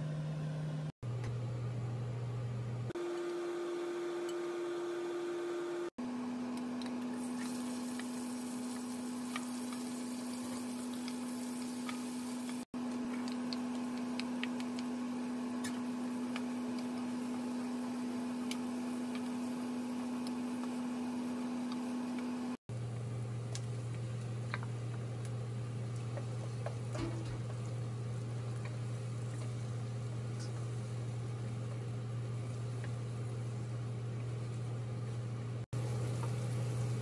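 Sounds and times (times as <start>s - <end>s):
vegetables sizzling in hot oil: 7.2s - 12.7s, 35.8s - 37.0s.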